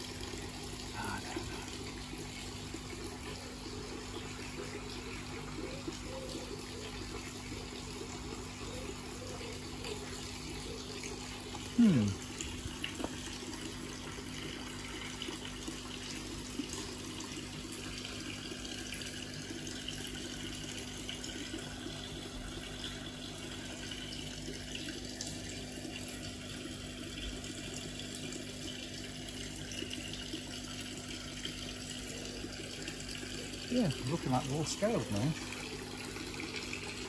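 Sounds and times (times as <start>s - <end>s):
water running and splashing: 0.0s - 37.0s.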